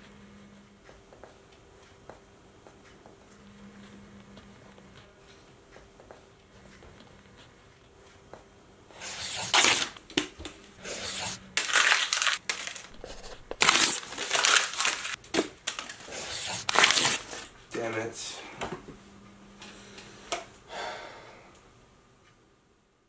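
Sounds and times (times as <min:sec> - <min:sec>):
paper being crumpled: 0:09.0 - 0:10.0, 0:10.9 - 0:17.5.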